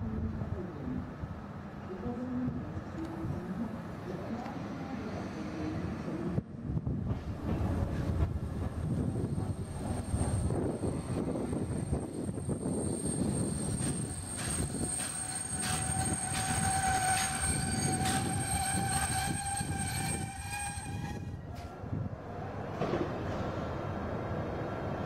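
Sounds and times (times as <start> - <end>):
steady high squeal: 9.2 - 21.4
train wheels clicking over rail joints: 13.7 - 20.3.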